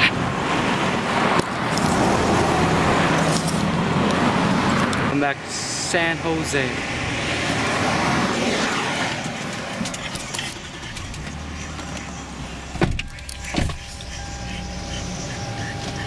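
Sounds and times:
car passing: 0.0s - 16.0s
car cabin hum: 9.8s - 16.0s.

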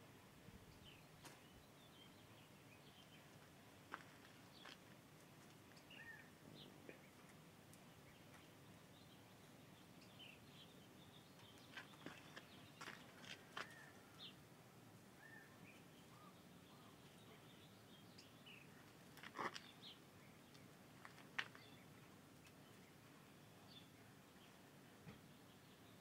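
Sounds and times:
bird chirps: 5.8s - 6.3s.

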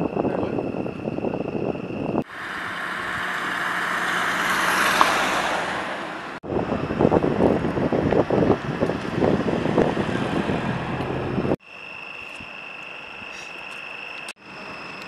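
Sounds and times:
tyres hissing on wet road: 2.2s - 6.4s.

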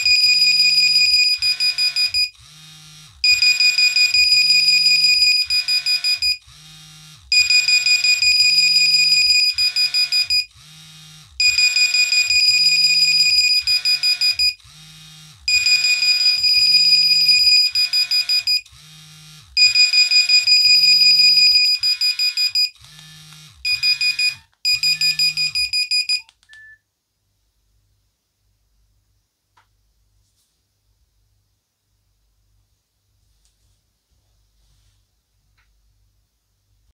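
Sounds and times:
phone alarms pulsing beeps: 0.0s - 2.3s, 3.2s - 6.4s, 7.3s - 10.5s, 11.4s - 14.6s, 15.5s - 18.6s, 19.6s - 22.8s, 23.6s - 26.8s.

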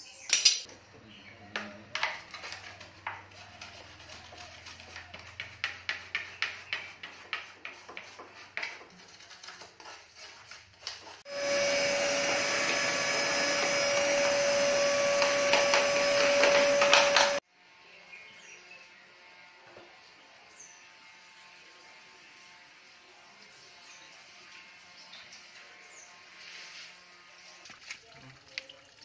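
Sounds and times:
vacuum cleaner whining: 11.2s - 17.4s.

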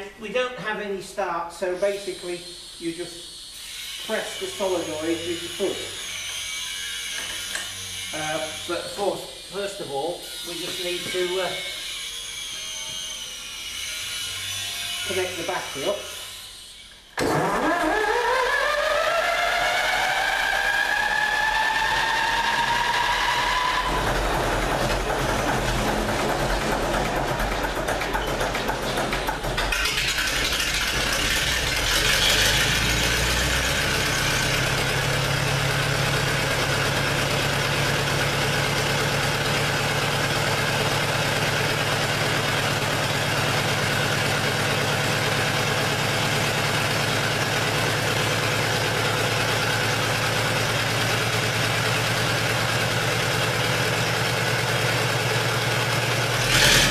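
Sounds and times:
diesel engine starter cranking: 17.2s - 36.4s, 56.3s - 56.9s
diesel engine running: 17.2s - 56.9s.

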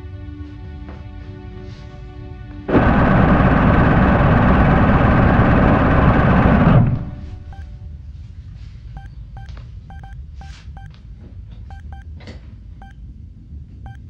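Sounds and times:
low rumbling drone: 2.7s - 8.1s
control panel beeps: 7.3s - 7.7s, 9.0s - 10.9s, 11.7s - 12.1s.

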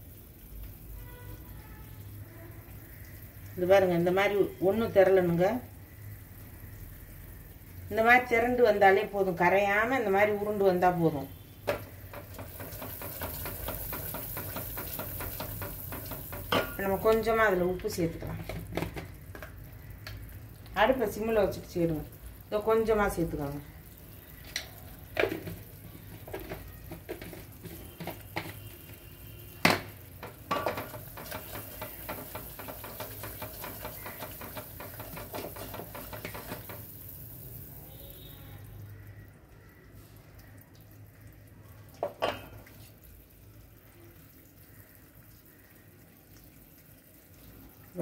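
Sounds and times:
light water sounds: 36.0s - 48.0s.

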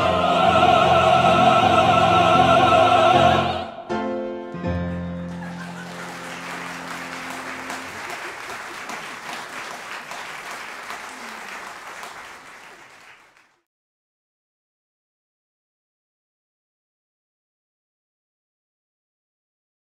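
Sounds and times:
audience applauding: 4.9s - 13.7s.

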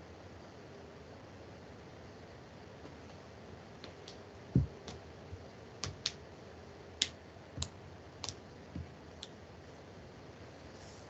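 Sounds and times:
low thumps: 4.6s - 4.8s.

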